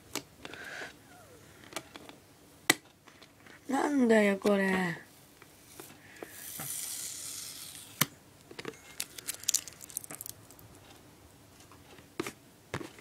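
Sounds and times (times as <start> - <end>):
small clicks and crinkles: 1.6 - 2.2, 8.4 - 11.0
packing tape tearing: 6.3 - 8.1, 8.9 - 10.7
tape snapping: 9.0 - 10.6.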